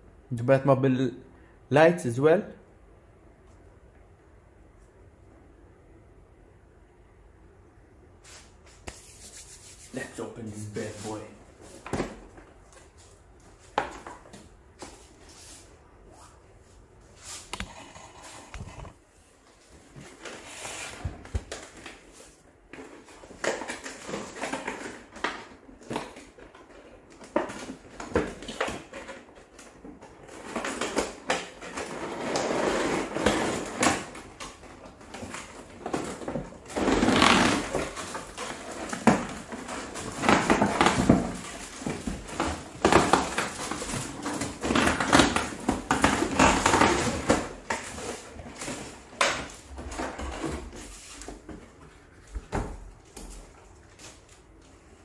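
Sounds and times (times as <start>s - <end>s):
cardboard flaps scraping and rustling: 17.0s - 54.3s.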